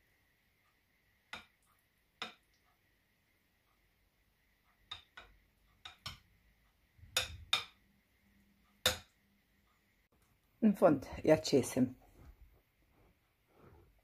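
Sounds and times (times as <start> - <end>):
utensil knocking against glass bowl: 4.9 - 6.3, 7.1 - 7.8.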